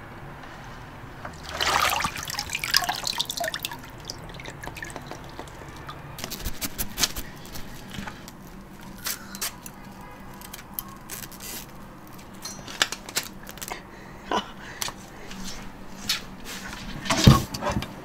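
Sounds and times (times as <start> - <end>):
water dripping: 1.2 - 6.4
water splashing: 1.3 - 7.2.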